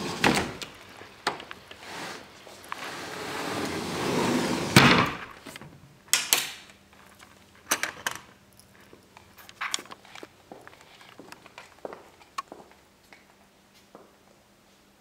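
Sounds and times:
sliding glass door rolling: 0.0 - 5.5.

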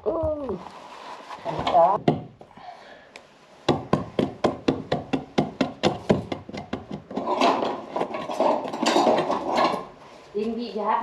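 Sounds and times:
tools clattering and rustling: 6.8 - 10.2.

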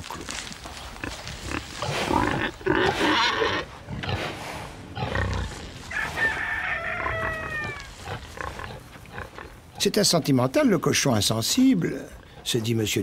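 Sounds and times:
pigs grunting and squealing: 1.0 - 10.1
long falling animal call: 5.9 - 8.0.

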